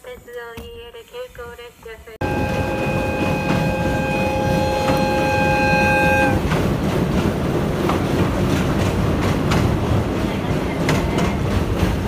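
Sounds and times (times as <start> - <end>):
wheels clicking over rail joints: 1.8 - 12.0
locomotive air horn: 2.2 - 6.5
train coach rumble: 2.2 - 12.0.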